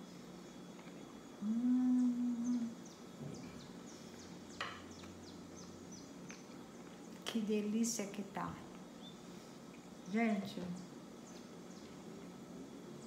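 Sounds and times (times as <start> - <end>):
woman humming mmm: 1.4 - 2.8.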